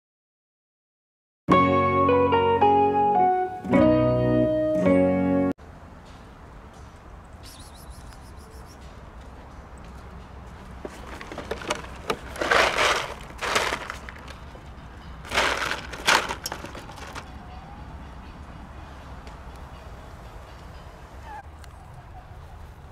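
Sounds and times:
plastic crinkling with pellets rattling: 11.0 - 14.4, 15.3 - 17.2.

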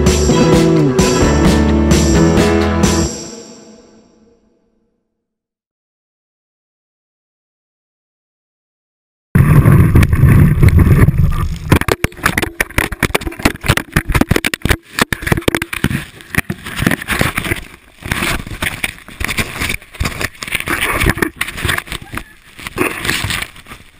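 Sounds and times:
wind buffeting microphone: 9.4 - 11.7
snow crackling and scraping: 9.4 - 23.9.

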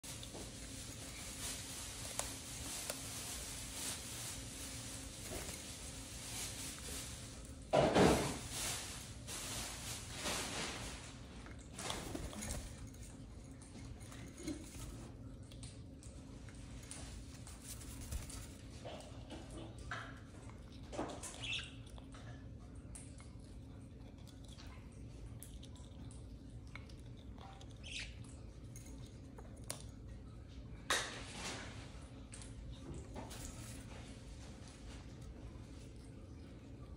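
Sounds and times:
parrot foraging in seed cup: 0.0 - 36.8
bird scuffle: 17.0 - 18.7.

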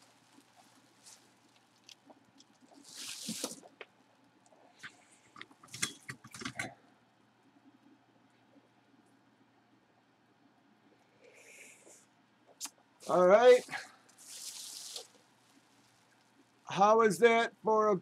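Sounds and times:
bubble wrap crinkling: 0.0 - 3.9, 13.0 - 16.7.

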